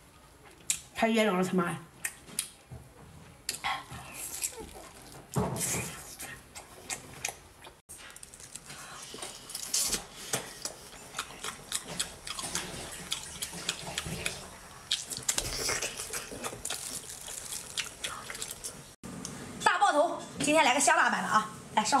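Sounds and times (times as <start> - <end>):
wet chewing and slurping: 3.5 - 19.0.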